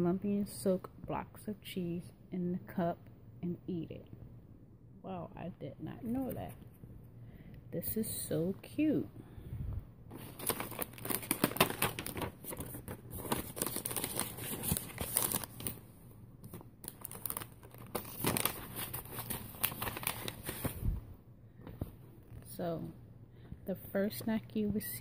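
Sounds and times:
paper and plastic bags crinkling: 0:10.1 - 0:21.0.

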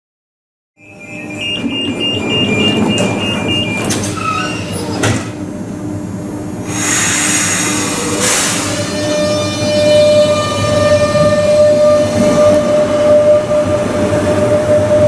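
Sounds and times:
door warning beeps: 0:00.8 - 0:05.2
train equipment humming: 0:00.8 - 0:15.0
sliding doors knocking shut: 0:01.4 - 0:05.4
loud air hiss: 0:06.7 - 0:09.0.

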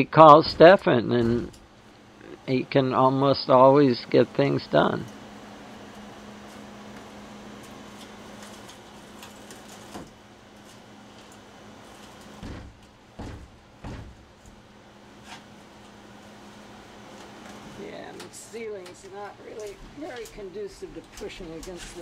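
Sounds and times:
dull thumps on boat hull: 0:12.4 - 0:14.3.

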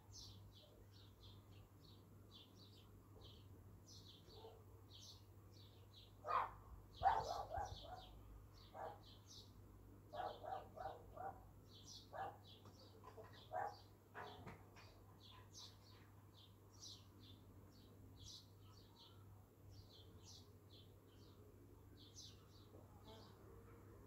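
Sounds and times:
small birds chirping: 0:00.0 - 0:23.5
dog barking: 0:04.3 - 0:04.6, 0:06.2 - 0:08.1, 0:08.7 - 0:09.1, 0:10.1 - 0:11.4, 0:12.1 - 0:12.5, 0:13.5 - 0:14.4.

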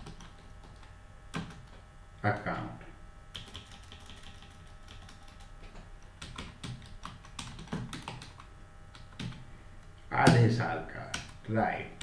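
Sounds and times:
computer keyboard typing: 0:00.0 - 0:01.8, 0:03.3 - 0:09.4, 0:11.0 - 0:11.4.

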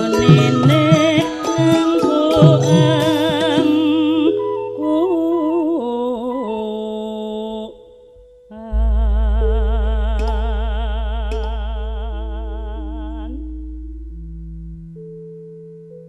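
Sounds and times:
gamelan accompaniment: 0:00.0 - 0:05.6, 0:08.8 - 0:16.0
woman singing with vibrato: 0:00.0 - 0:13.8
deep low tone: 0:08.2 - 0:16.0.

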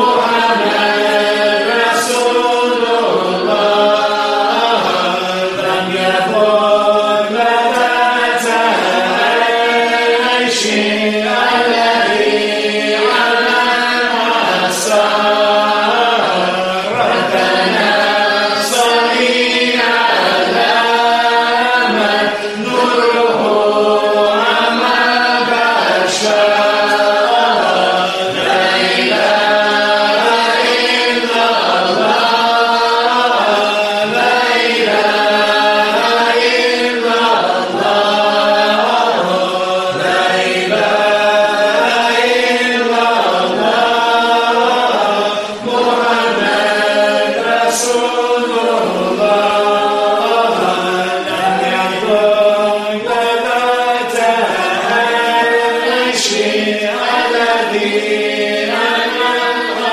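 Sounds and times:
group of voices chanting: 0:00.0 - 0:59.9.

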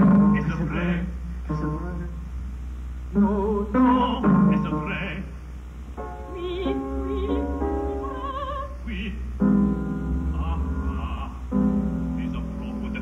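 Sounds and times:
operatic singing with vibrato: 0:00.0 - 0:02.2, 0:03.1 - 0:05.4, 0:06.3 - 0:09.3
low mains hum: 0:00.0 - 0:13.0.

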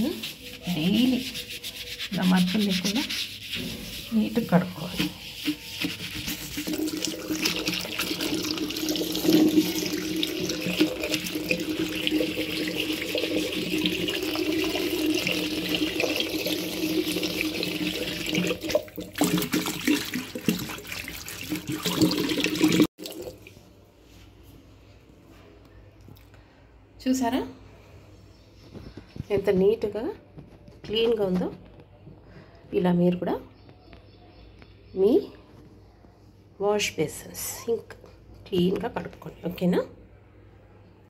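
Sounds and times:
scrub pad rubbing bowl: 0:00.0 - 0:22.8
tap water splashing in basin: 0:05.8 - 0:23.5.

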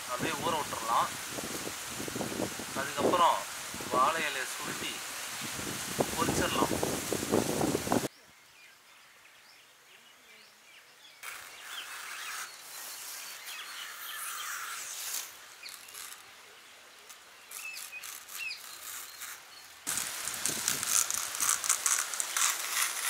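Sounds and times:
banana leaves rustling: 0:00.0 - 0:08.1, 0:11.2 - 0:23.0
birds chirping: 0:08.0 - 0:19.9
fibre peeled from stem: 0:11.2 - 0:16.4, 0:17.0 - 0:23.0.

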